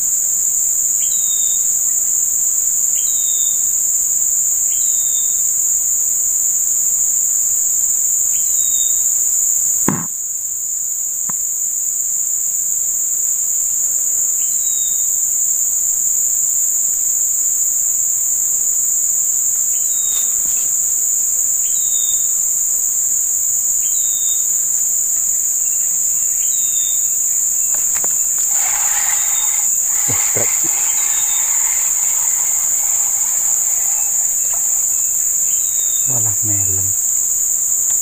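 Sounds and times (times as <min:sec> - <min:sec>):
shrill insect chorus: 0:00.0 - 0:10.2, 0:11.7 - 0:38.0
knock: 0:09.9 - 0:10.1.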